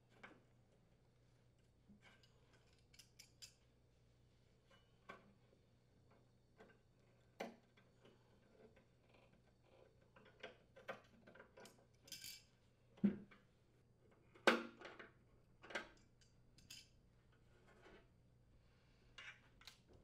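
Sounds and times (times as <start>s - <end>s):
light metal clicks and clinks: 2.2s - 3.6s, 11.6s - 12.5s, 15.9s - 17.0s.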